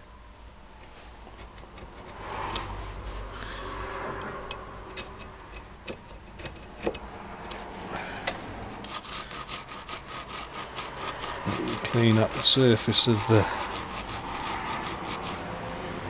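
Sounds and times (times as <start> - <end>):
hacksaw blade scraping and clicking: 0.8 - 2.8, 4.2 - 7.7, 8.7 - 15.4
scouring pad scrubbing metal: 8.7 - 15.4.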